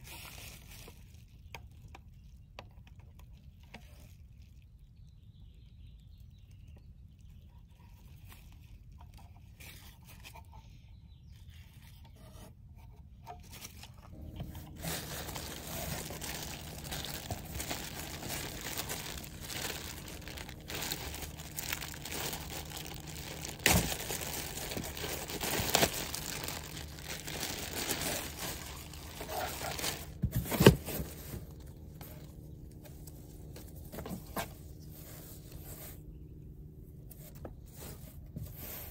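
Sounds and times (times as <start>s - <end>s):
plastic packaging rustling: 0.0s - 1.5s, 13.4s - 35.6s.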